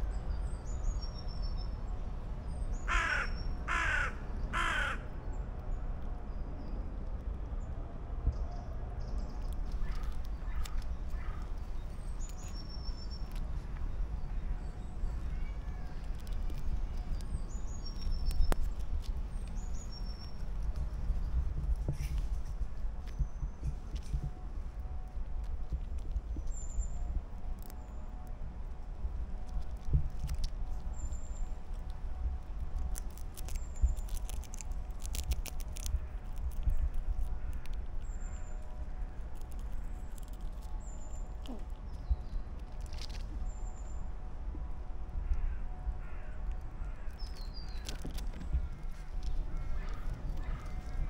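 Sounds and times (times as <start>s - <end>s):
steady low rumble: 0.0s - 51.0s
birds calling: 2.8s - 5.0s
squirrel gnawing a nut shell: 9.1s - 43.8s, 46.4s - 51.0s.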